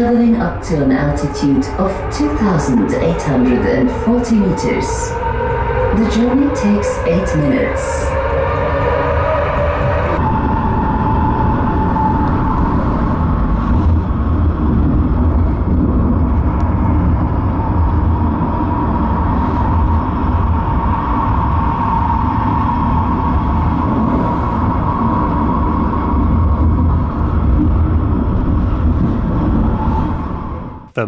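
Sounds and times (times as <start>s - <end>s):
funicular rumbling with whine: 0.0s - 31.0s.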